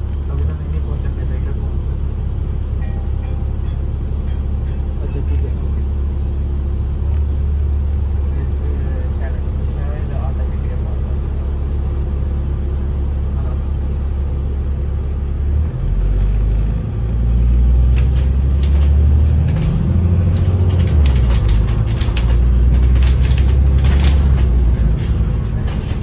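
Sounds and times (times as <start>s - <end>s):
bus engine drone: 0.0s - 26.0s
bodywork rattles and clicks: 17.8s - 26.0s.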